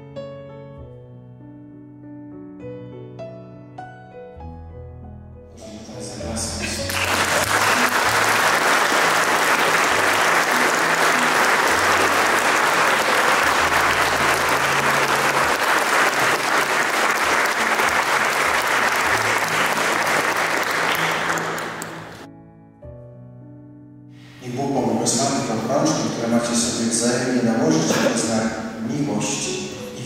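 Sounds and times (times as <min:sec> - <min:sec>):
congregation applauding: 0:06.6 - 0:22.3.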